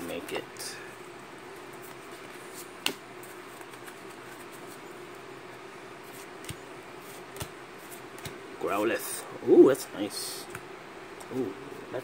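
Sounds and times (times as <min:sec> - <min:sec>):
steady low hum: 0:00.0 - 0:12.0
cards being flipped through: 0:01.5 - 0:04.8, 0:06.0 - 0:08.4.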